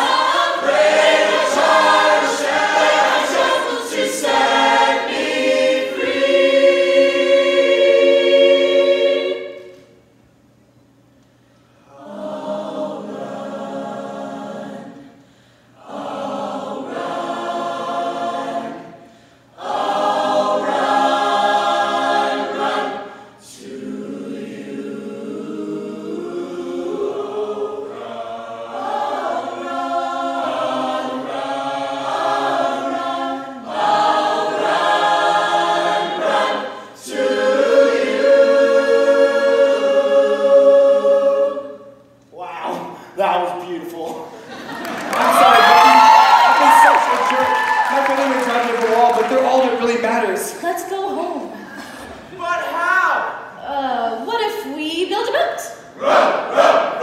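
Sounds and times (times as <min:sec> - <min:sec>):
large choir singing chords: 0:00.0 - 0:10.1, 0:11.8 - 0:42.2, 0:55.8 - 0:57.0.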